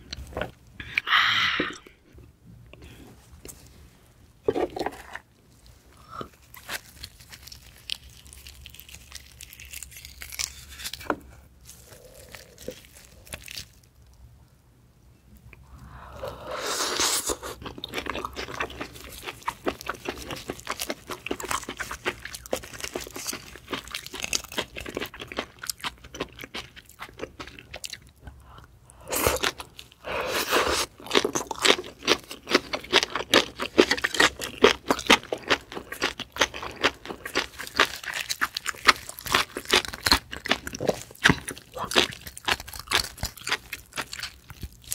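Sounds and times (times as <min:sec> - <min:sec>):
wet chewing mouth sounds: 0:16.9 - 0:44.9.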